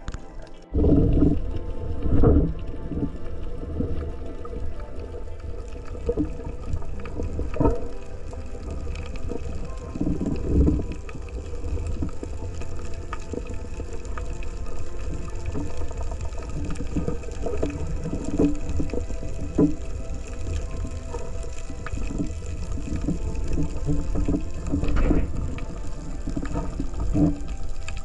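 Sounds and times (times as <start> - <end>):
underwater rumble of moving water: 0.0 - 28.0.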